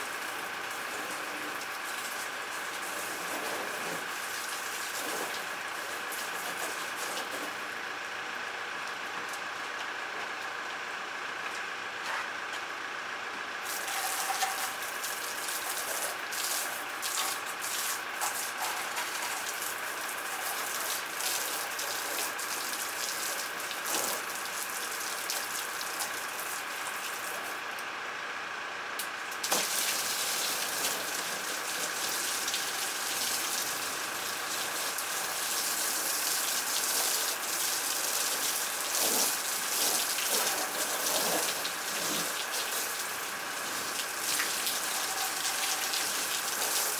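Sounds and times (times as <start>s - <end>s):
faint steady pump whine: 0.0s - 46.9s
water spraying onto plastic hull: 0.8s - 7.6s, 13.6s - 27.5s, 29.3s - 46.9s
water splashing on wet concrete: 29.4s - 46.9s.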